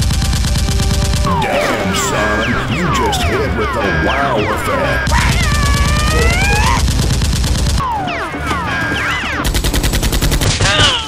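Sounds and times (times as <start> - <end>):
rapid automatic gunfire: 0.0 - 1.3, 5.0 - 8.1, 9.0 - 11.0.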